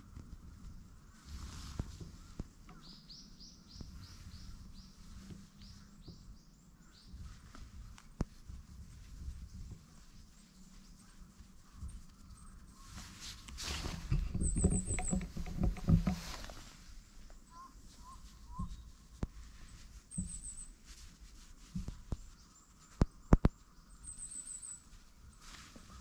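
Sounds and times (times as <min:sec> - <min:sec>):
hand rustling cat fur: 0:00.1 - 0:02.8, 0:03.8 - 0:06.3, 0:07.1 - 0:26.0
soft knocks: 0:13.5 - 0:16.7.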